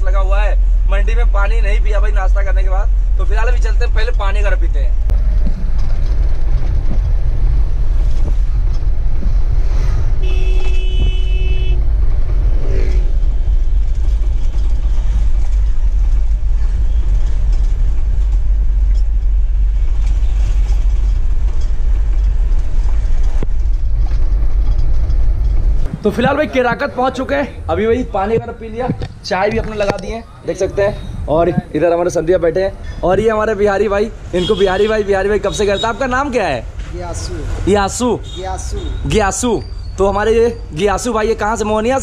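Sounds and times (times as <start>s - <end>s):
vehicle engine and tyres rumbling: 0.0s - 42.0s
car horn: 10.1s - 11.9s, 34.3s - 36.2s.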